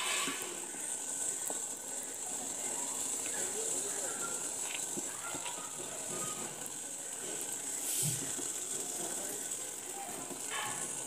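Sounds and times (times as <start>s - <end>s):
syrup boiling with hiss: 0.0s - 11.0s.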